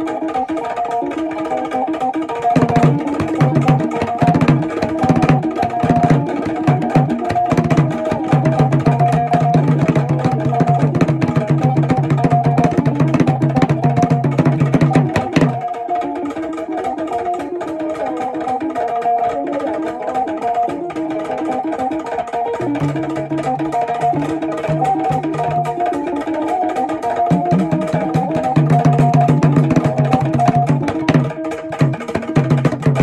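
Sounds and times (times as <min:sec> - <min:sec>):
guitar: 0:00.0 - 0:33.0
hand drums fast rhythm: 0:00.0 - 0:33.0.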